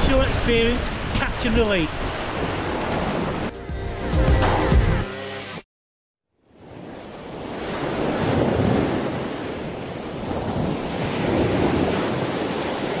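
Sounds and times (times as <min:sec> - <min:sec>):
sea surf washing in: 0:00.0 - 0:03.5, 0:06.6 - 0:13.0
wind buffeting microphone: 0:07.4 - 0:13.0.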